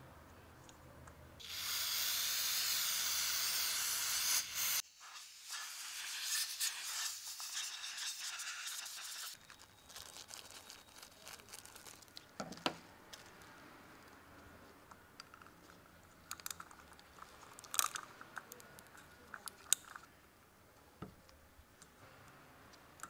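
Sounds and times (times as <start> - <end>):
aerosol spray can hissing: 1.4 - 9.4
plastic bag crinkling: 9.4 - 14.1.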